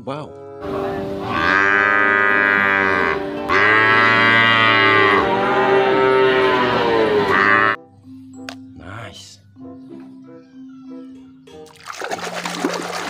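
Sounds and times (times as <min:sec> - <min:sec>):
water buffalo mooing: 0:00.6 - 0:07.8.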